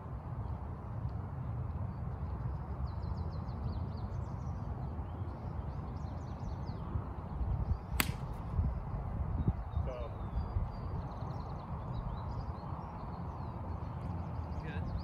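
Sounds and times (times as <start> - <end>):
wind on microphone: 6.4 - 13.0
golf club striking ball: 8.0 - 8.5.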